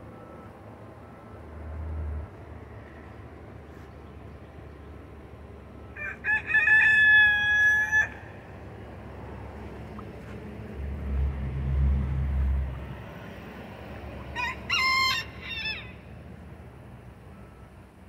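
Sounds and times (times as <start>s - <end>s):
rooster crowing: 5.9s - 8.4s, 14.3s - 16.1s.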